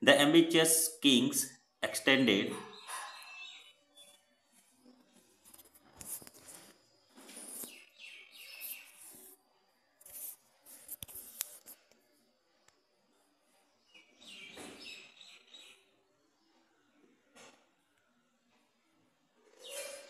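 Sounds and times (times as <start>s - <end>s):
birds chirping: 1.9s - 5.3s, 6.9s - 9.2s, 13.8s - 16.0s.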